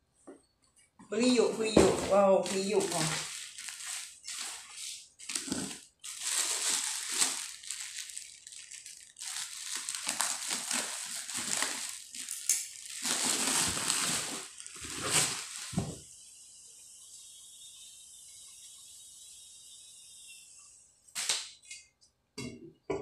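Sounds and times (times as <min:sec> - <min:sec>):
plastic wrapping crinkling: 0:01.2 - 0:16.0.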